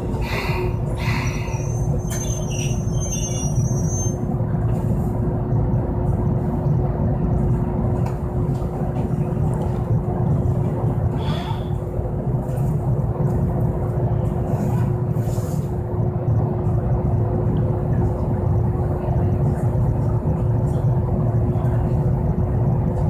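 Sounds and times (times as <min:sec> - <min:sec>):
tram brakes squealing: 0:00.0 - 0:04.4, 0:11.2 - 0:11.9
constant hum: 0:00.0 - 0:23.0
low rumble: 0:04.2 - 0:23.0.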